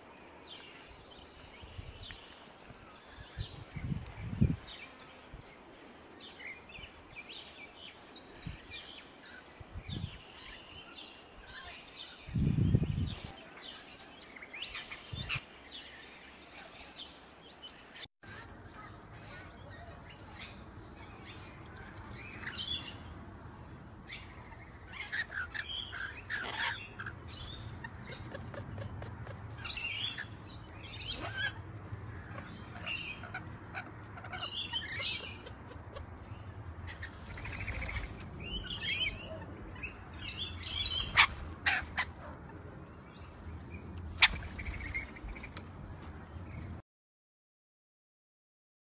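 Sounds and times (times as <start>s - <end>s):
lorikeets chattering: 18.3s - 23.2s, 24.0s - 42.2s.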